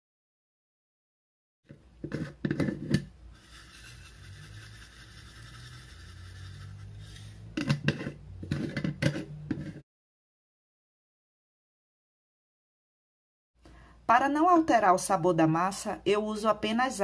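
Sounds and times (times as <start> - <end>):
kitchen clatter knocks and clinks: 7.6 - 9.8.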